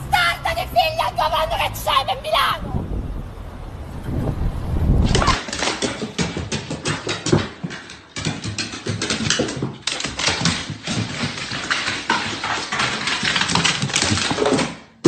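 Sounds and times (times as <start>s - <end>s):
dog paws clattering on hardwood: 5.1s - 15.0s
footsteps on hardwood stairs: 5.2s - 15.0s.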